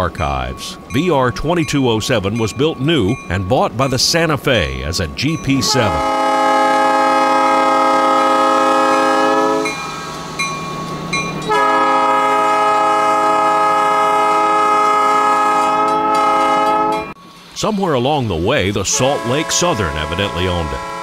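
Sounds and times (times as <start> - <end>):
locomotive air horn blasts: 5.6 - 9.8, 11.5 - 17.1, 18.9 - 21.0.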